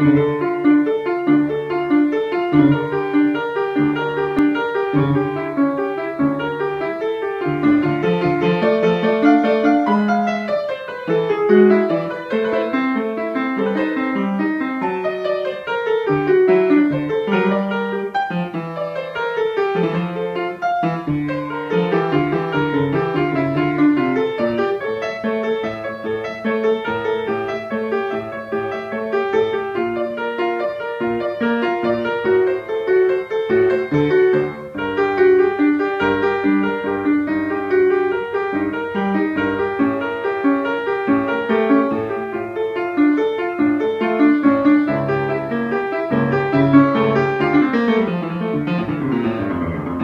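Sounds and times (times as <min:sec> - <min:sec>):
solo piano: 0:00.0 - 0:50.0.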